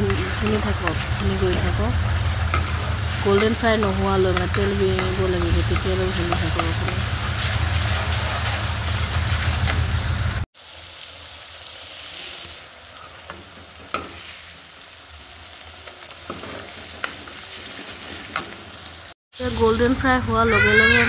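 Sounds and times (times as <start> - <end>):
spoon tapping metal pan: 0.0 - 1.8, 2.5 - 7.1
paste sizzling in hot oil: 0.0 - 19.2.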